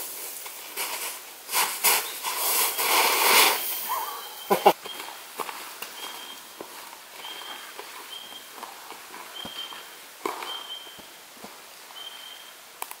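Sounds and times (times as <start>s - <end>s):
footsteps on dirt and leaves: 0.0s - 12.0s
high steady whistle: 11.9s - 12.6s.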